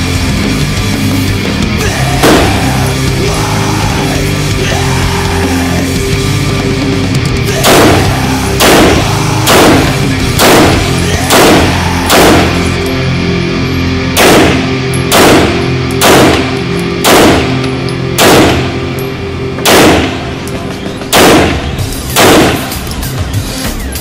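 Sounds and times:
background music with low tones: 0.0s - 24.0s
pistol shots echoing: 2.2s - 2.7s, 7.6s - 13.0s, 14.1s - 23.1s.

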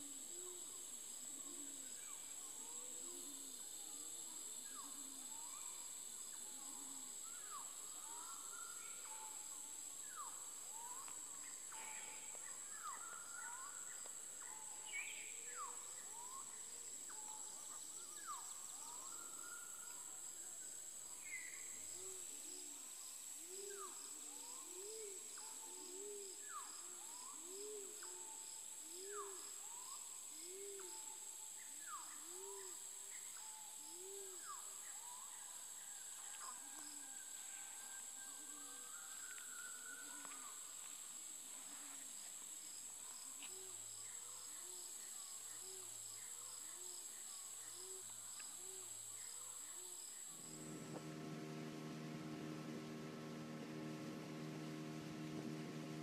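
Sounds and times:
high-pitched insect drone: 48.7s - 56.0s
low rising-and-falling note: 50.4s - 56.0s.

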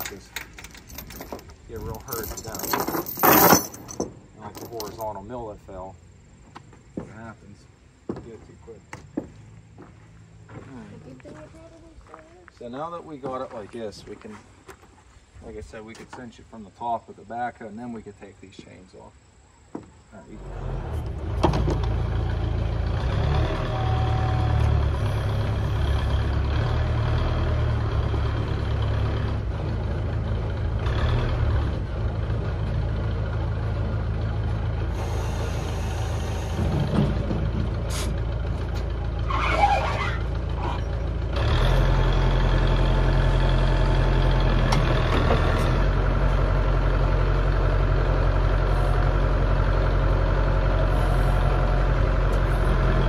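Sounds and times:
diesel engine running: 20.3s - 53.0s.

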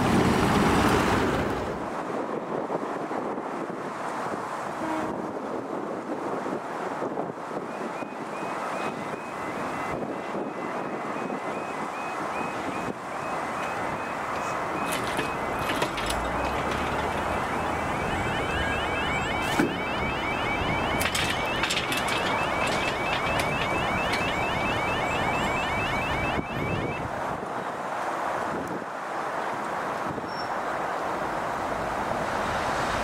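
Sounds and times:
level crossing alarm tones: 8.0s - 27.1s
steady background rush: 8.9s - 27.1s.

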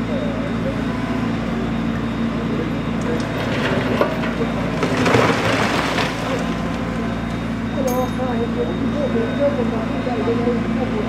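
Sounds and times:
bricks and debris crashing down: 3.4s - 6.6s.

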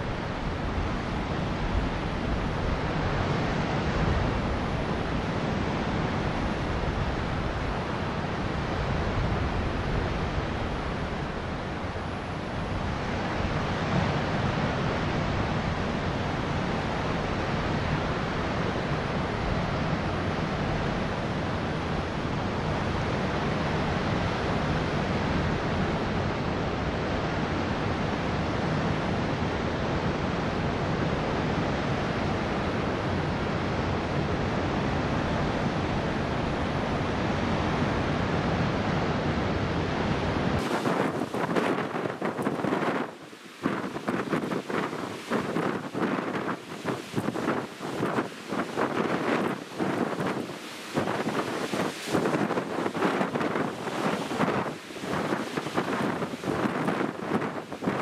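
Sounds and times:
sea waves rushing: 0.0s - 58.0s
wind on microphone: 0.0s - 58.0s.

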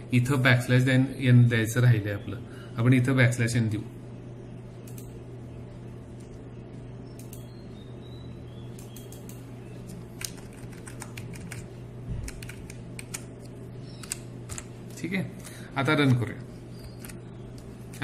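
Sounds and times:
steady low hum: 0.0s - 18.0s
computer keyboard keystrokes: 10.2s - 14.7s.

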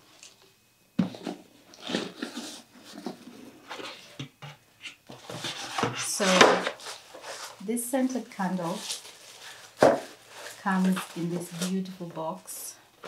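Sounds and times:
tissue paper rustling: 5.3s - 12.6s.

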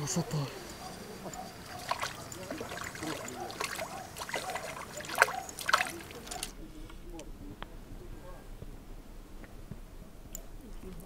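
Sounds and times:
water splashing: 0.0s - 6.8s.

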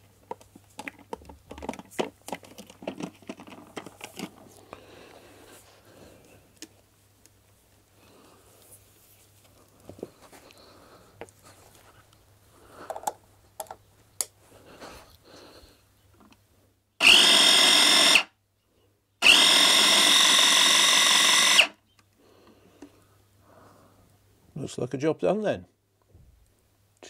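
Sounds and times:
clicks and knocks of handling: 0.2s - 4.8s, 12.8s - 14.4s
food chopper motor whining: 17.0s - 18.3s, 19.2s - 21.8s.

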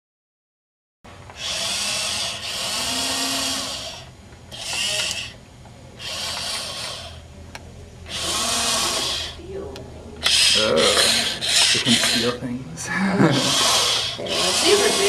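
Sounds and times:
toy robot motors whirring: 1.3s - 5.4s, 6.0s - 7.2s, 8.1s - 9.4s, 10.2s - 12.4s, 13.2s - 15.0s.

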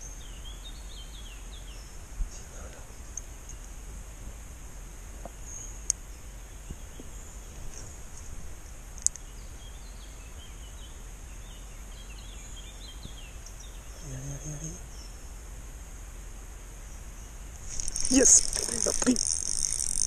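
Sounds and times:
high insect drone: 7.3s - 20.0s
faint bird chirps: 9.0s - 15.4s, 16.8s - 20.0s
sharp clicks: 17.7s - 20.0s.

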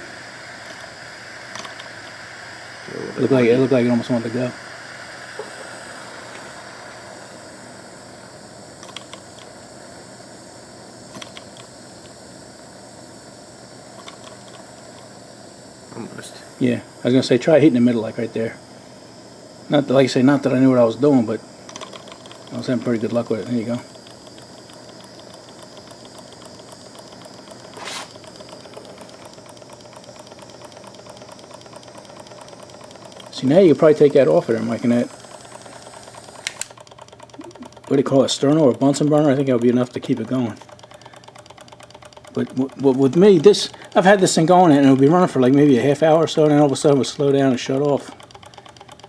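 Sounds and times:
small engine flywheel ticking: 0.0s - 18.6s, 19.6s - 49.0s
jet torch hissing: 0.0s - 48.9s.

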